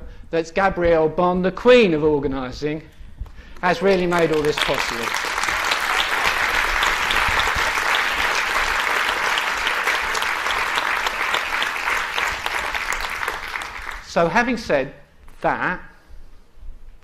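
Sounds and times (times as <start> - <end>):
audience applauding: 3.6 - 14.4.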